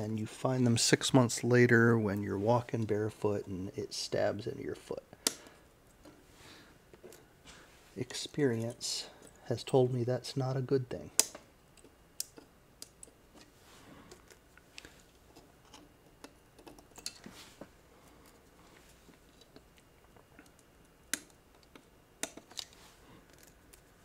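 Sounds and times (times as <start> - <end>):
faint handling rustle: 13.3 - 20.6, 22.5 - 24.0.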